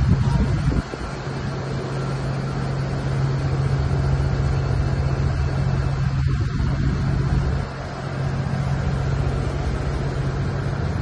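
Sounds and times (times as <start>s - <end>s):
low machinery hum: 0.0s - 11.0s
rumbling rush of noise: 0.0s - 11.0s.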